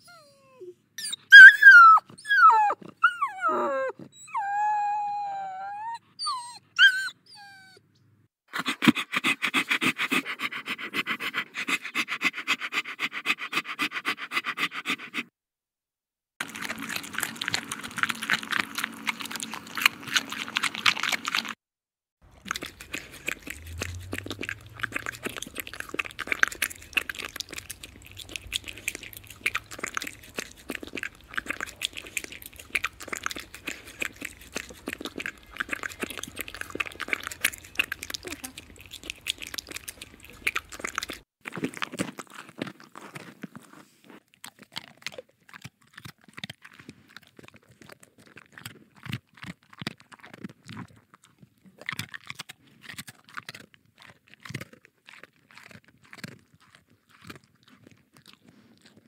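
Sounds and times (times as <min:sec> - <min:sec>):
puppy whimpering: 0:00.0 - 0:07.8, 0:37.1 - 0:38.7
dogs eating and drinking: 0:08.6 - 0:15.2, 0:16.4 - 0:21.6, 0:22.2 - 0:59.0.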